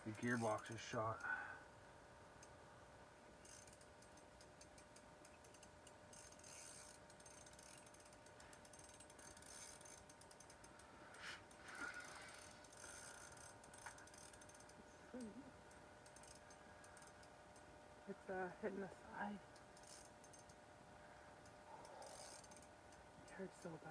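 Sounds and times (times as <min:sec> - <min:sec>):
fishing reel clicking: 0:00.2 - 0:01.4, 0:03.4 - 0:10.9, 0:11.5 - 0:15.3, 0:16.0 - 0:17.7, 0:19.6 - 0:20.6, 0:21.4 - 0:23.0.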